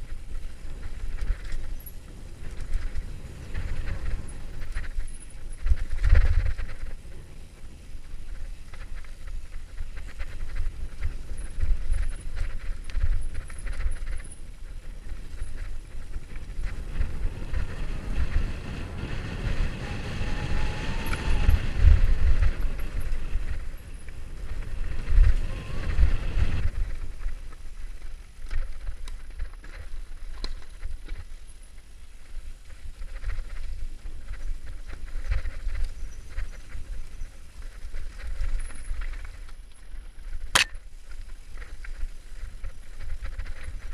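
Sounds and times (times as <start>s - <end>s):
bike rattling and knocking: 0.0s - 18.3s
wind buffeting microphone: 0.0s - 43.9s.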